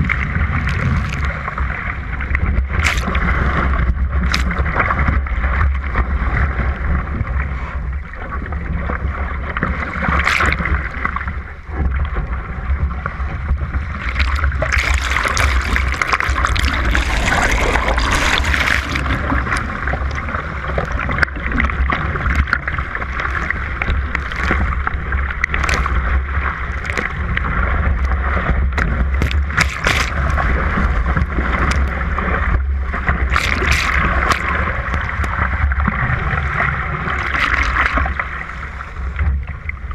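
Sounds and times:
sharp water splashes: 0.0s - 5.1s, 10.0s - 11.2s, 13.8s - 38.5s
churning water rushing: 0.0s - 39.9s
wind rumbling on microphone: 0.0s - 39.9s.

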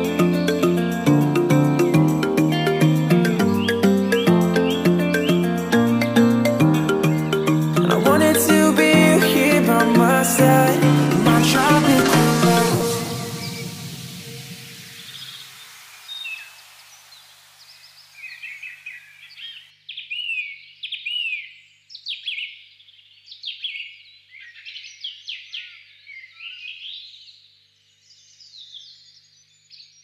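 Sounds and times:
birds chirping: 0.0s - 21.5s
steady hiss: 9.9s - 19.0s.

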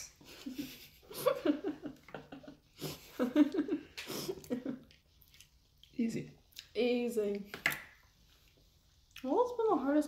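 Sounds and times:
person giggling: 0.2s - 4.9s.

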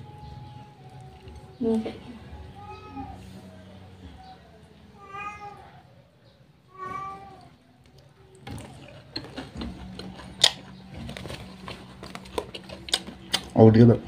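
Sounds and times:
crunching and chewing food: 0.0s - 2.3s, 7.3s - 14.0s
cat meowing: 2.4s - 3.3s, 4.9s - 6.0s, 6.7s - 7.6s.

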